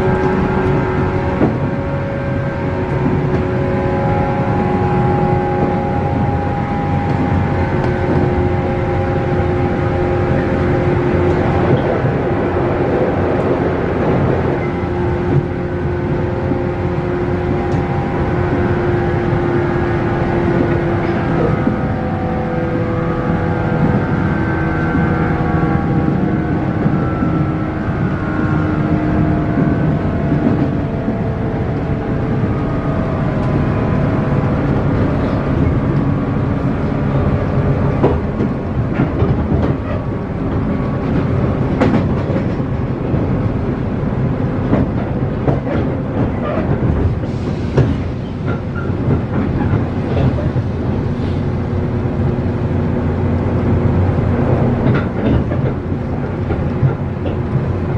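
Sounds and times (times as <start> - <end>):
train wheels rumbling: 0.0 - 57.9
wheels clicking over rail joints: 53.2 - 57.9.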